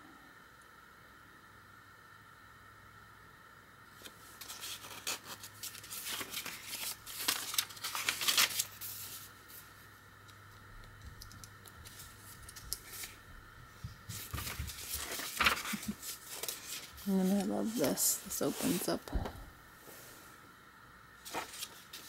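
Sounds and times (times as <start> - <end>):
paper pages rustling: 4.0 - 9.7, 11.2 - 13.2, 14.0 - 19.1, 21.2 - 22.0.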